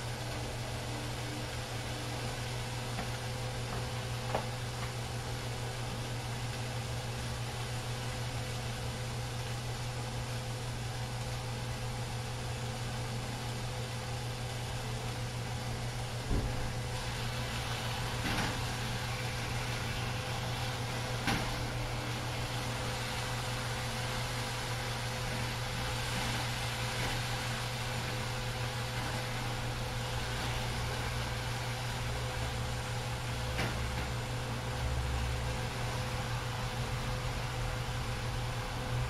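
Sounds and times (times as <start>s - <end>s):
chicken sizzling in frying pan: 0.0s - 39.0s
steady low hum: 0.0s - 39.0s.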